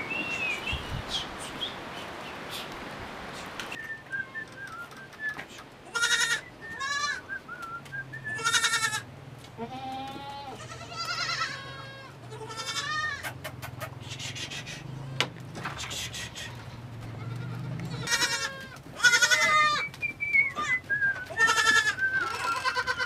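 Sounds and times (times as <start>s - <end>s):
goats bleating: 5.8s - 7.2s, 8.3s - 19.9s, 20.5s - 23.0s.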